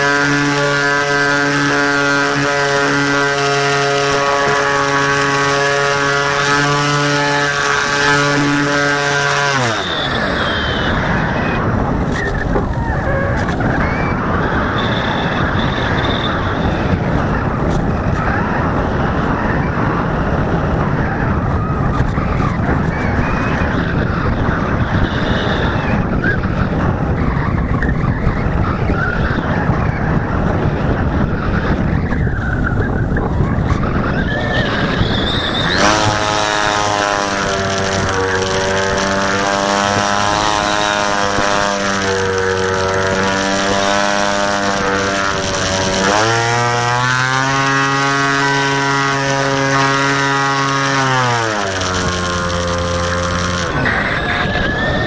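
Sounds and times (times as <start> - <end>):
electric motor whine: 0.0 - 13.8, 34.8 - 55.0
wind buffeting microphone: 0.0 - 55.0.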